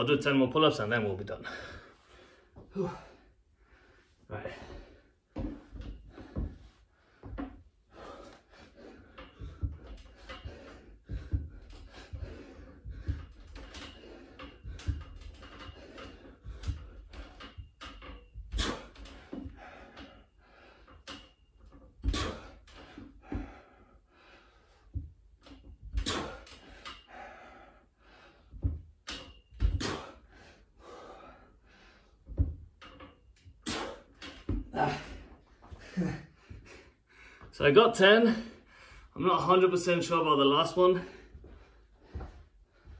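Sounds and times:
man breathing hard: 1.4 - 25.2, 26.0 - 32.6, 33.6 - 37.5, 38.4 - 39.2, 41.0 - 42.9
metal frame knocking and creaking: 4.4 - 23.8, 24.6 - 27.2, 28.4 - 36.8.

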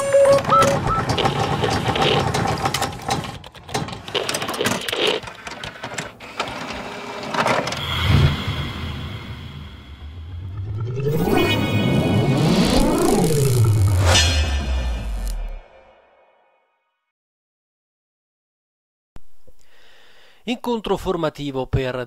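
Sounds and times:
fast mechanical clatter of clicks: 0.3 - 7.6.

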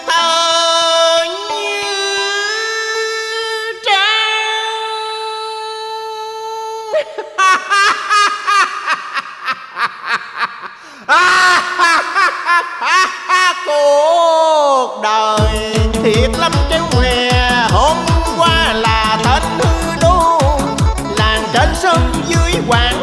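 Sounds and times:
man singing: 0.0 - 7.2, 13.4 - 23.0
keyboard accompaniment: 15.4 - 23.0.

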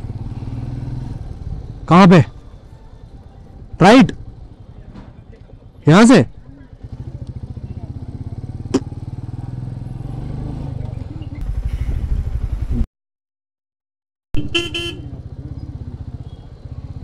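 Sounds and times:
vehicle horn honking: 14.4 - 15.2.

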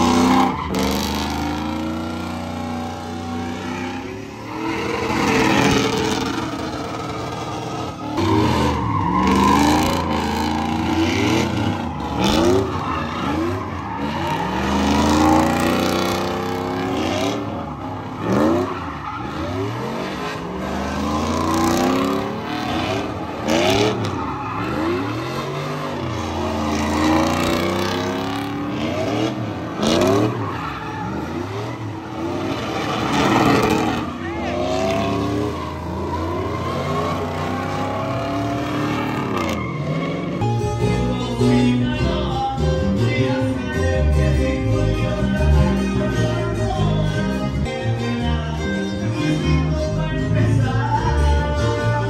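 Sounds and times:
engine revving hard: 0.0 - 40.4.

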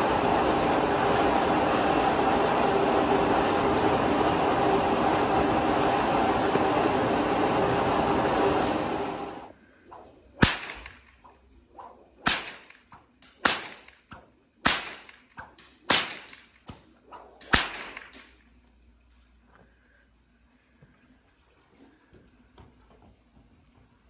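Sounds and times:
rushing blower fan: 0.0 - 9.5
whip cracking: 9.9 - 18.4.

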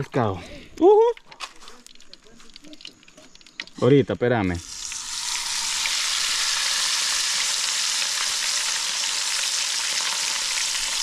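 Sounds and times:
fish sizzling in hot oil: 1.6 - 11.0.

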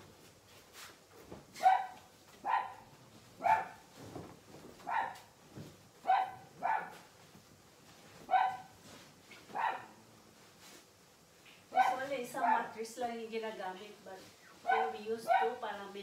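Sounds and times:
small dog barking: 1.6 - 3.9, 4.8 - 5.3, 6.0 - 7.0, 8.3 - 8.7, 9.5 - 10.0, 11.7 - 12.7, 14.6 - 15.6.

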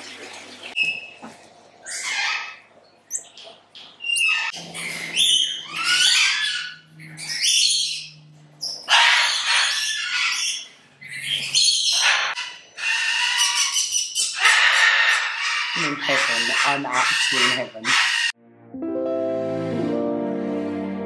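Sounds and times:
monkeys squeaking: 4.0 - 8.1, 8.7 - 18.3.

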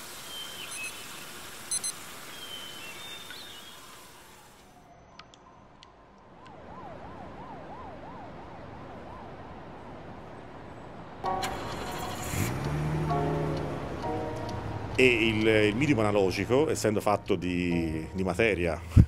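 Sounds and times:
siren sweeping up and down: 4.6 - 10.4.

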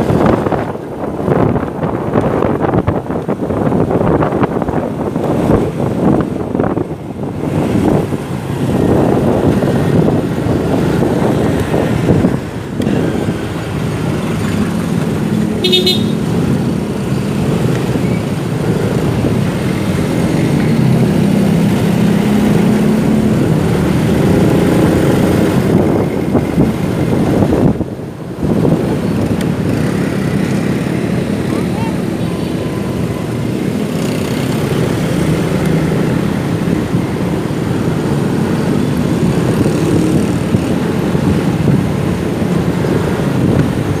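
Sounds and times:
motorcycle engine and road noise: 0.0 - 44.0
street traffic: 0.0 - 44.0
high horn toot: 15.6 - 16.3.

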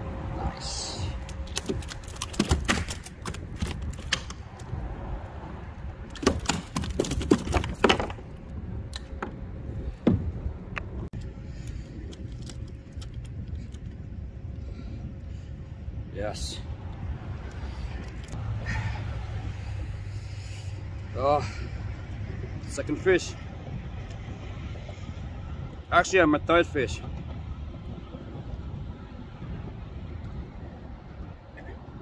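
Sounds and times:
wind rumbling on microphone: 0.0 - 32.0
sharp clicks and rattles: 1.2 - 4.8, 6.0 - 8.3.

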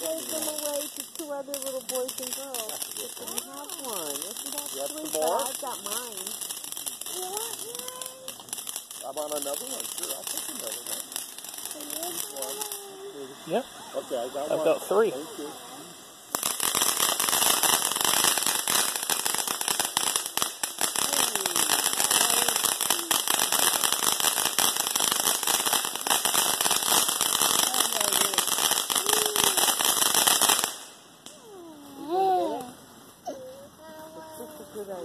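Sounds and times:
firework fountain crackling: 0.0 - 35.0.

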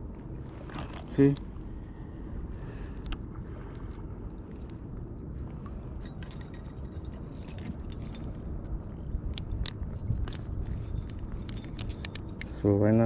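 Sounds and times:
metal carabiners jangling: 6.0 - 13.0.

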